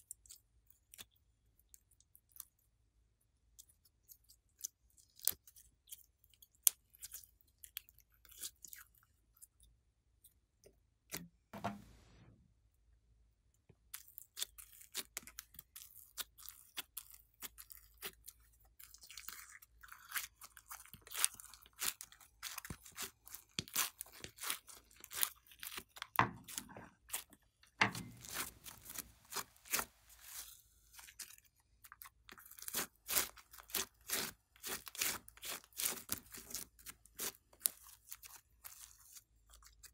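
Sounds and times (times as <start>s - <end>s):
slime crackling and popping: 28.0s - 30.5s.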